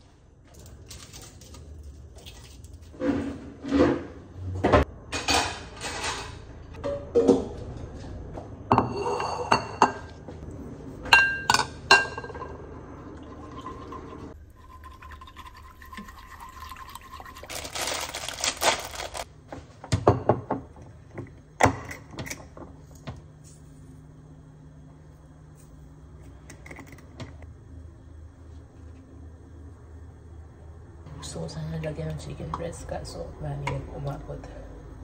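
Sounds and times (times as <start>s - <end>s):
pots and utensils clinking: 8.7s - 10.1s, 11.1s - 12.6s
liquid being poured: 12.8s - 18.2s.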